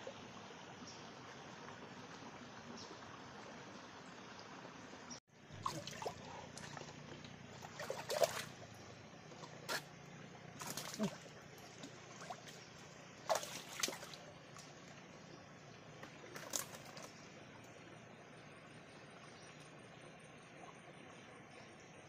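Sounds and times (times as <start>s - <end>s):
water splashing: 5.5s - 15.3s, 15.9s - 17.4s.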